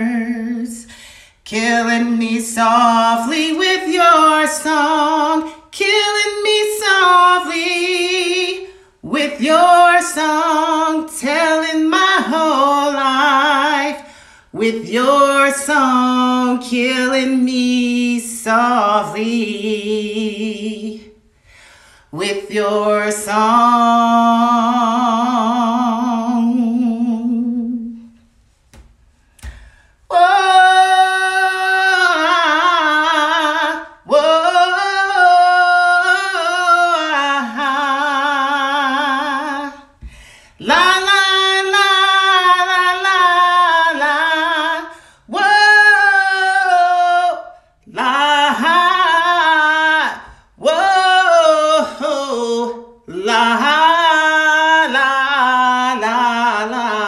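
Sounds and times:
woman singing unaccompanied: 0.0s - 21.2s, 22.1s - 28.2s, 30.1s - 40.0s, 40.6s - 57.0s
woman breathing in: 0.8s - 1.4s, 14.0s - 14.5s, 21.4s - 22.1s, 29.2s - 30.1s, 40.0s - 40.6s.

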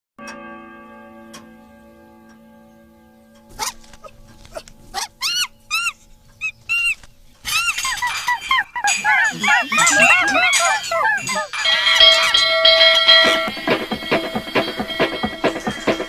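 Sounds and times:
pendulum clock chime: 0.2s - 16.0s
birds squawking in chorus: 3.5s - 11.6s.

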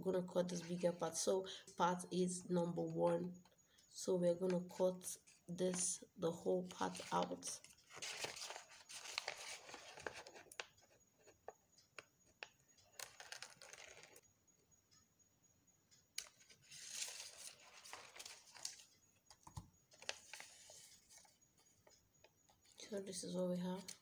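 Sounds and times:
paper rustling: 6.8s - 10.9s, 13.0s - 14.2s, 16.2s - 18.9s, 19.9s - 21.4s.

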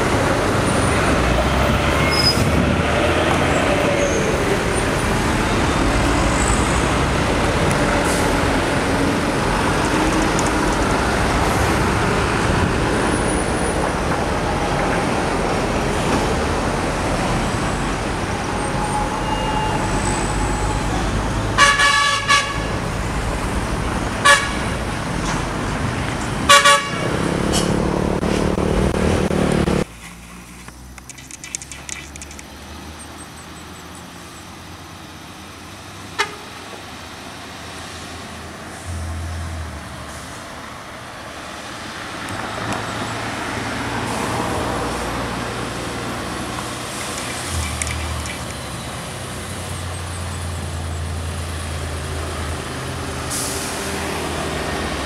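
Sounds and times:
heavy road traffic: 0.0s - 55.0s
heavy truck diesel engine: 0.0s - 55.0s
vehicle horn toots: 21.6s - 22.7s, 24.2s - 24.7s, 26.5s - 27.1s.

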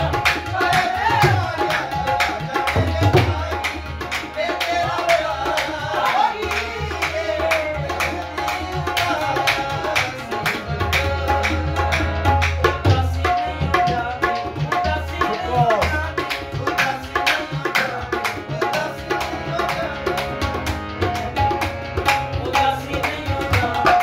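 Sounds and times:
harmonium held notes: 0.0s - 24.0s
man singing: 0.0s - 24.0s
tabla and dholak drumming: 0.0s - 24.0s.

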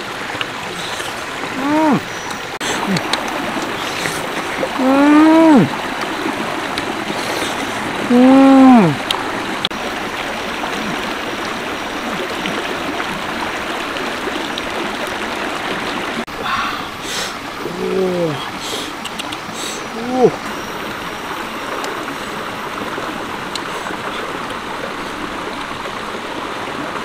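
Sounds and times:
stream rushing over stones: 0.0s - 27.0s
person humming: 1.5s - 2.0s, 2.7s - 3.1s, 4.6s - 5.7s, 8.0s - 9.0s, 17.6s - 18.5s, 19.9s - 20.4s.

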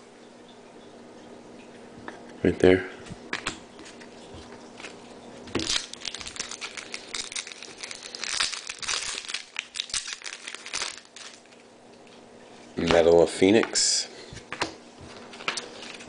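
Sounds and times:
wrapper being torn and crinkled: 4.8s - 11.7s.

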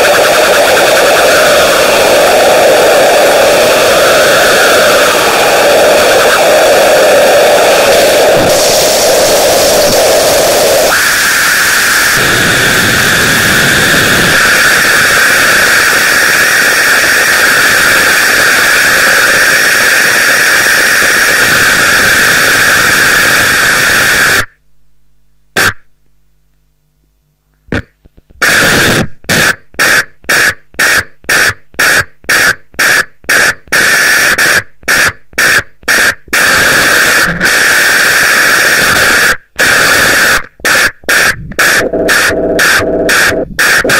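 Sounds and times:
harsh static noise: 0.0s - 43.9s.

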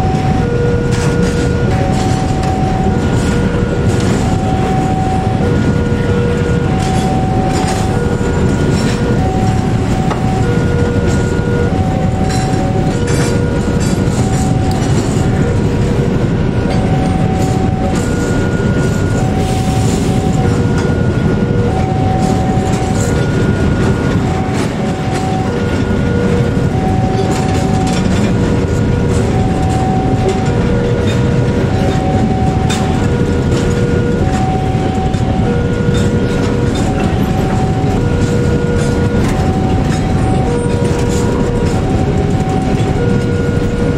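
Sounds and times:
steel wheels rumbling on rail: 0.0s - 43.9s
two-tone warning chime: 0.0s - 43.9s.

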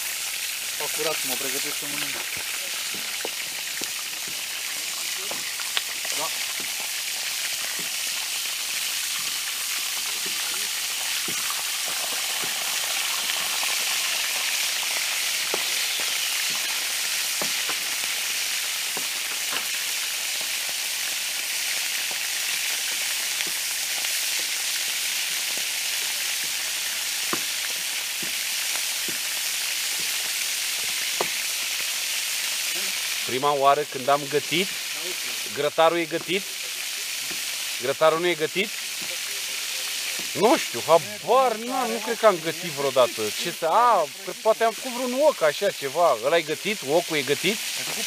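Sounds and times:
meat sizzling in a pan: 0.0s - 48.0s
sharp pops: 1.8s - 4.6s, 15.4s - 18.1s, 25.5s - 31.5s.

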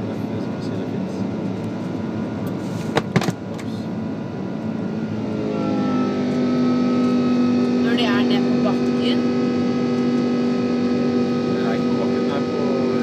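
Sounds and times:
jet engines roaring: 0.0s - 13.0s
multi-tone hum: 0.0s - 13.0s
cabin airflow: 1.3s - 7.3s.

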